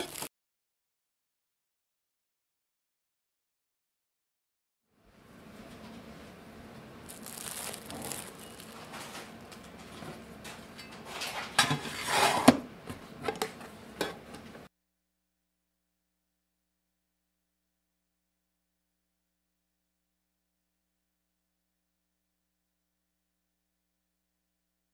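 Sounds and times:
plastic cling wrap crinkling: 0:00.0 - 0:00.3, 0:07.0 - 0:10.0
steel lid scraping and clanking: 0:07.9 - 0:12.6.

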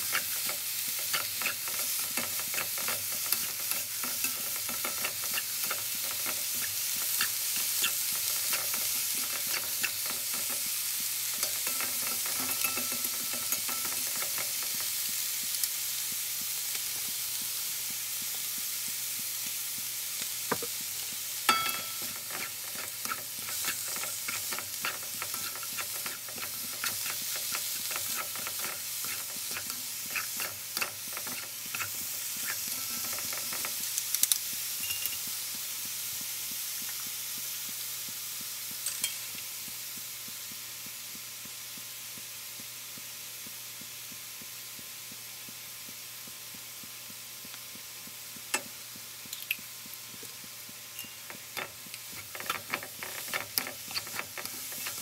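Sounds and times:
utensils scraping and clacking on pan: 0:00.0 - 0:15.2, 0:20.5 - 0:35.3, 0:50.9 - 0:55.0
cabbage sizzling in a wok: 0:00.0 - 0:55.0.

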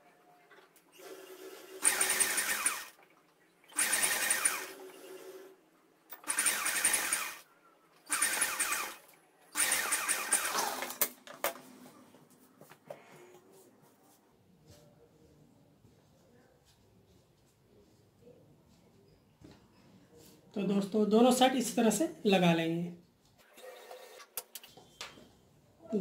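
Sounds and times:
sewing machine stitching: 0:00.9 - 0:03.1, 0:03.7 - 0:07.4, 0:08.0 - 0:11.1.

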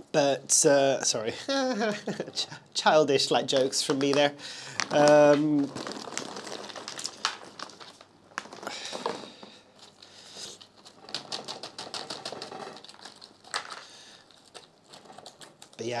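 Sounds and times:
plastic bag crinkling: 0:03.3 - 0:16.0
small clicks and rustles: 0:03.5 - 0:16.0.

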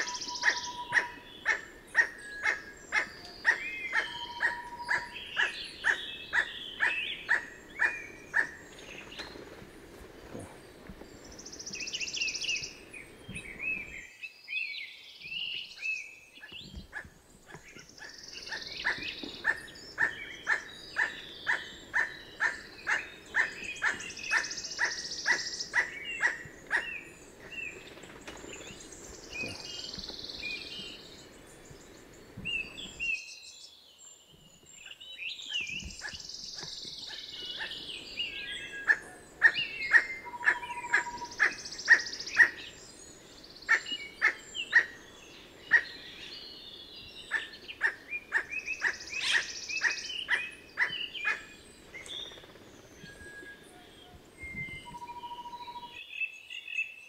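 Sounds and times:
bird barking call: 0:00.0 - 0:08.6, 0:16.8 - 0:27.1, 0:36.0 - 0:37.8, 0:38.7 - 0:42.6, 0:43.7 - 0:45.0, 0:45.7 - 0:45.9, 0:47.3 - 0:51.5.

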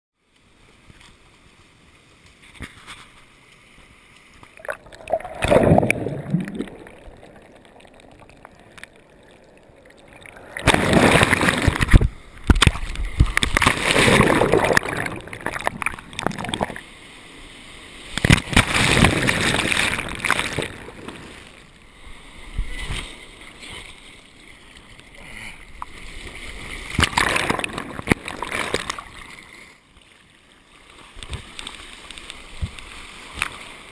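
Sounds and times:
surf splashing and rushing: 0:04.5 - 0:24.0, 0:26.0 - 0:29.7.

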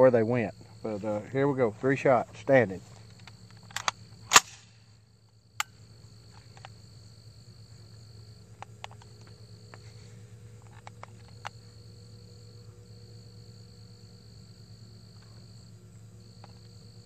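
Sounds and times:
insects trilling: 0:00.0 - 0:17.0
faint rifle clicks: 0:03.0 - 0:06.8, 0:08.6 - 0:09.8, 0:10.6 - 0:11.6.

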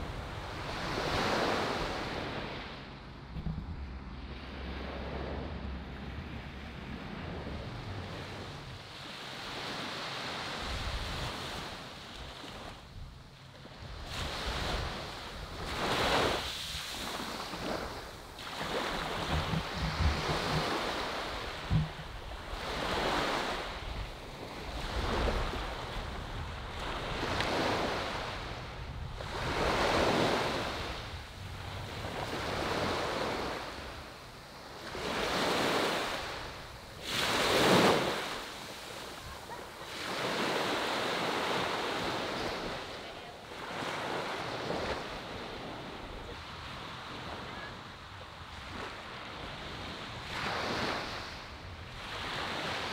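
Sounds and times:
small waves breaking on beach: 0:00.0 - 0:02.9, 0:04.2 - 0:52.9.

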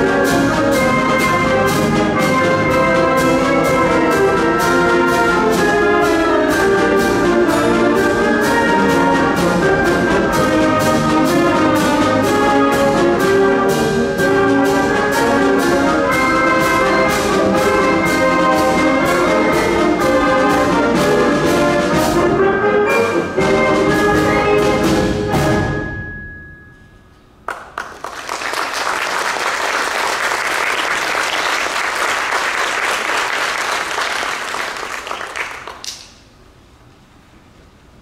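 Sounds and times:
concert band playing a march: 0:00.0 - 0:26.1
audience applauding: 0:27.5 - 0:36.1.

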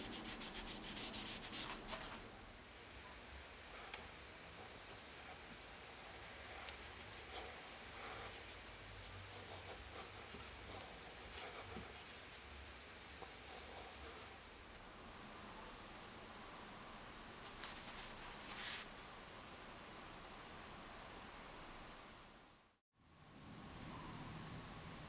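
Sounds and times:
cloth rubbing on wood: 0:00.0 - 0:02.2, 0:03.7 - 0:14.3, 0:17.4 - 0:18.9.

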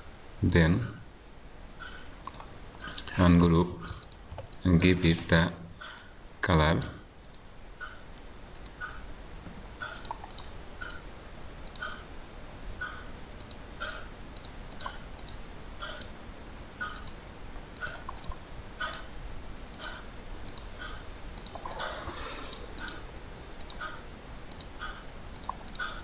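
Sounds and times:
mouse buttons clicking: 0:02.2 - 0:05.3, 0:09.8 - 0:11.0, 0:11.6 - 0:12.0, 0:12.8 - 0:16.2, 0:16.8 - 0:17.2, 0:17.8 - 0:23.0, 0:23.6 - 0:26.0.

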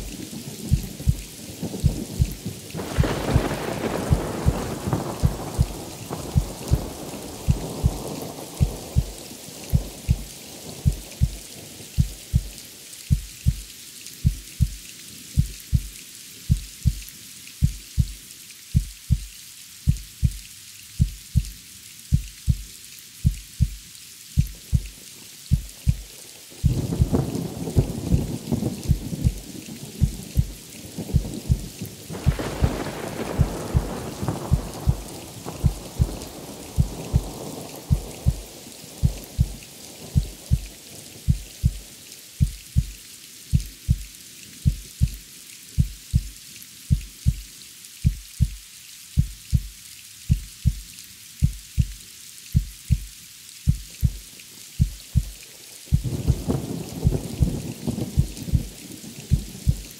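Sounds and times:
thunder rumbling: 0:00.0 - 0:13.6, 0:26.6 - 0:42.9, 0:55.9 - 0:59.9
heartbeat thumps: 0:00.0 - 0:14.8, 0:15.4 - 0:18.2, 0:18.8 - 0:19.3, 0:19.9 - 0:20.4, 0:21.0 - 0:23.8, 0:24.4 - 0:29.4, 0:30.0 - 0:39.6, 0:40.2 - 0:40.7, 0:41.3 - 0:41.8, 0:42.4 - 0:45.2, 0:45.8 - 0:48.6, 0:49.2 - 0:52.0, 0:52.6 - 0:54.2, 0:54.8 - 0:57.6, 0:58.2 - 0:59.9
rain hiss: 0:00.0 - 0:59.9.

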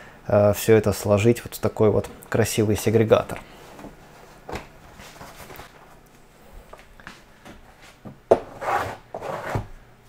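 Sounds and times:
binder scraping wooden shelf: 0:08.4 - 0:09.7.

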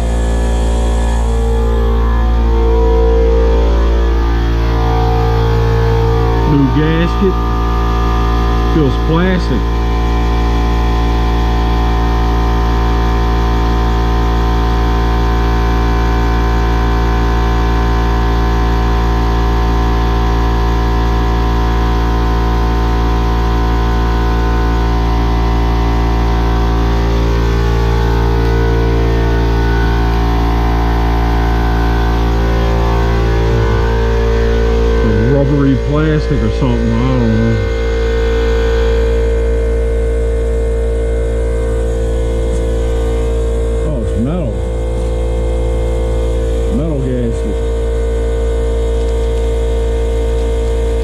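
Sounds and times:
steady loud hum: 0:00.0 - 0:51.0.

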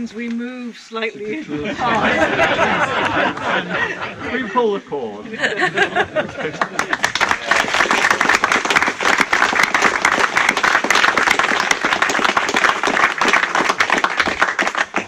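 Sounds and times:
crowd applauding: 0:06.3 - 0:15.0.

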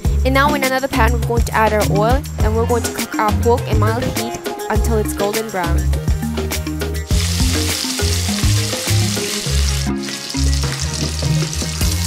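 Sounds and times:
music bass line: 0:00.0 - 0:12.0
meat sizzling in oil: 0:07.1 - 0:12.0.

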